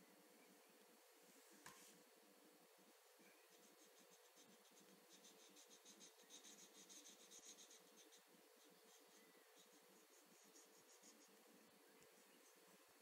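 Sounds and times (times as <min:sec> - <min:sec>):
pen scribbling on paper: 0:03.5 - 0:11.3.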